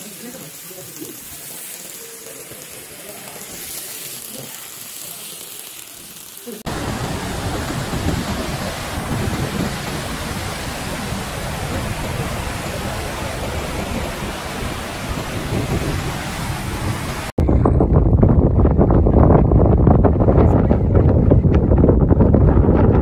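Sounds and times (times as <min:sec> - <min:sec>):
unpitched rushing noise: 0:06.6 - 0:23.0
deep buffeting rush: 0:06.7 - 0:23.0.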